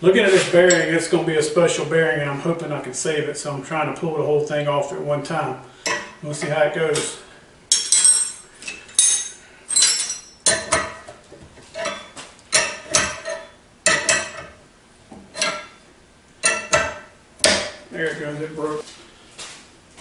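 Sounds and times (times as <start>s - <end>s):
metal clinks and rattles: 7.7s - 11.0s.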